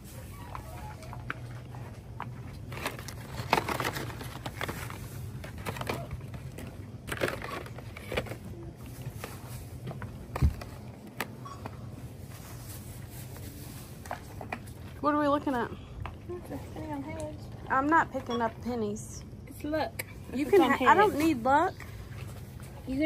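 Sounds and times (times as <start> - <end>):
low steady hum: 0.0 - 23.0
plastic packaging rustling and clicking: 0.5 - 14.9.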